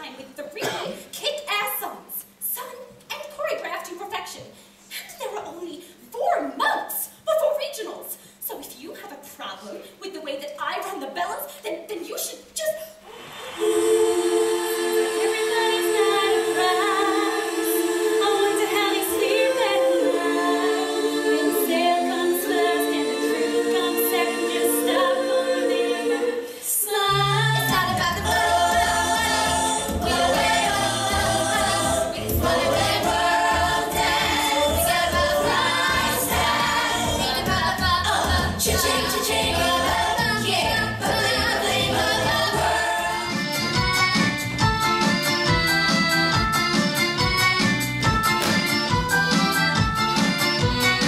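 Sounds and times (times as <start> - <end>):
group singing a cappella: 13.1 - 43.8
upbeat song with bass beat: 27.2 - 51.0.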